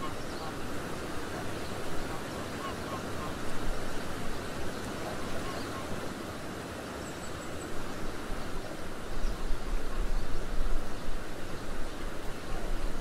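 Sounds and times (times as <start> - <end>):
water noise: 0.0 - 13.0
wind: 0.0 - 13.0
wind buffeting microphone: 7.6 - 13.0.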